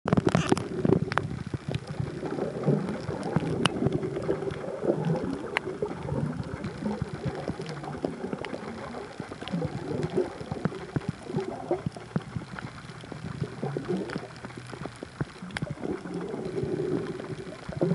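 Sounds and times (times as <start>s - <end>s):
muffled churning water underwater: 0.1s - 17.9s.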